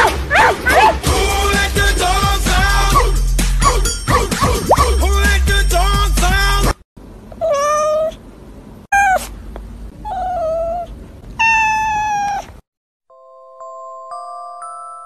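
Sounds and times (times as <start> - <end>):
cat meowing: 7.4 - 8.2, 9.0 - 9.3, 10.0 - 12.5.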